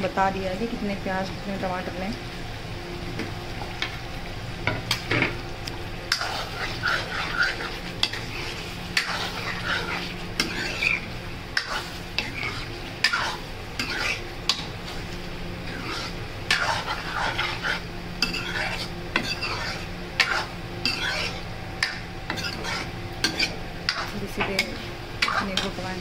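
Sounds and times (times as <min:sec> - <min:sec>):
gravy sizzling: 0:00.0 - 0:26.0
utensil scraping metal pan: 0:06.1 - 0:15.0, 0:15.6 - 0:26.0.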